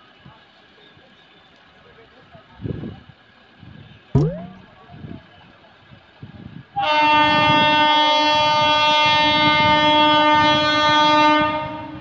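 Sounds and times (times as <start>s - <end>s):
locomotive horn blast: 6.8s - 12.0s.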